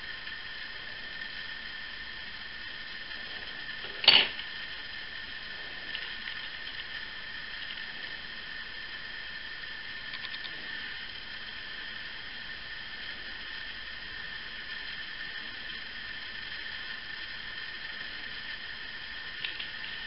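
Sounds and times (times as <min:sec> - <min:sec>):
background hiss: 0:00.0 - 0:20.0
faint high whine: 0:00.0 - 0:20.0
faint ticks: 0:05.8 - 0:07.9, 0:10.0 - 0:10.6.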